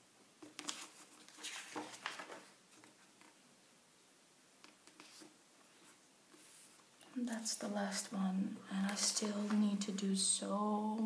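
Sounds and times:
book page turning: 0.4 - 3.4, 8.8 - 9.7
paper rustling: 0.4 - 3.4.

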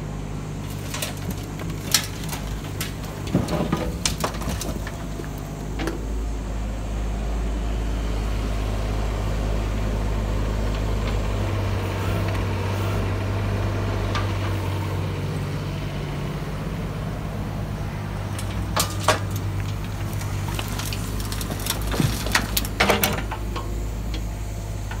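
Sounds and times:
excavator diesel engine running: 0.0 - 25.0
bucket and soil hitting truck bed: 0.6 - 6.3, 17.6 - 24.3.

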